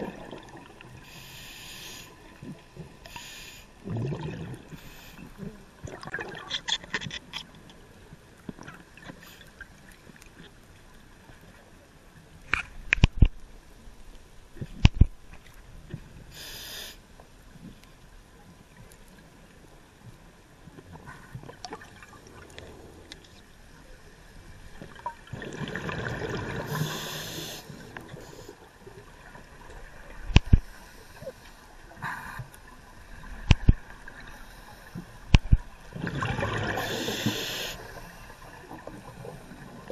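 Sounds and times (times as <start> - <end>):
exhaled bubbles gurgling: 0.0 - 1.0, 3.8 - 4.8, 5.4 - 6.7, 24.9 - 28.0, 35.4 - 39.9
regulator inhale hiss: 1.0 - 2.4, 3.0 - 3.8, 4.7 - 5.4, 16.3 - 17.1, 26.6 - 28.7, 30.6 - 32.5, 36.7 - 38.4.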